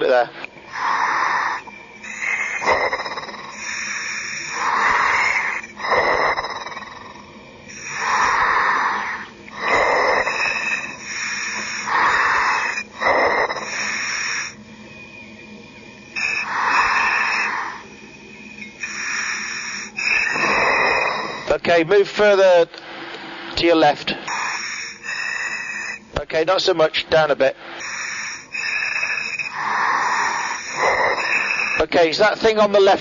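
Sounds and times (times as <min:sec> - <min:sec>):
diver breathing through helmet: 0:00.7 - 0:14.6, 0:16.2 - 0:17.9, 0:18.7 - 0:21.5, 0:24.2 - 0:26.1, 0:27.6 - 0:31.8.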